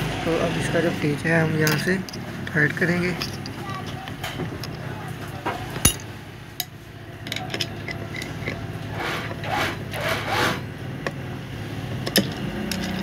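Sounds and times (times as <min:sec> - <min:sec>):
screwdriver scraping in screw head: 0:07.3 - 0:10.6.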